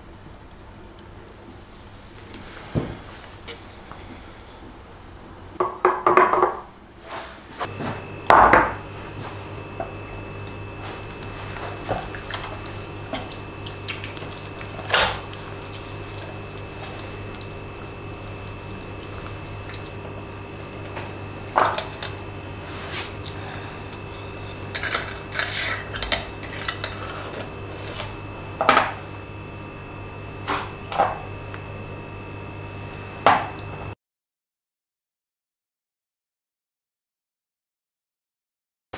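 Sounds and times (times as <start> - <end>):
steady low hum: 6.7 - 34.0.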